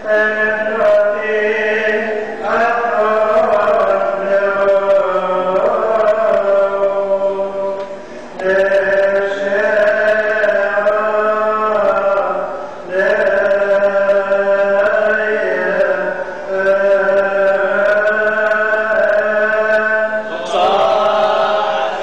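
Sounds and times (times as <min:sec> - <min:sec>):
man chanting solo: 0:08.4 - 0:22.0.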